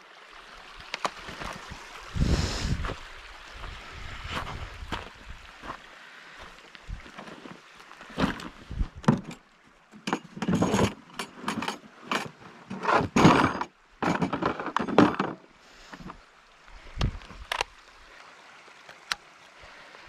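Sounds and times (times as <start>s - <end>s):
drill handling knocks and rattling: 9.0s - 9.4s, 10.0s - 15.4s.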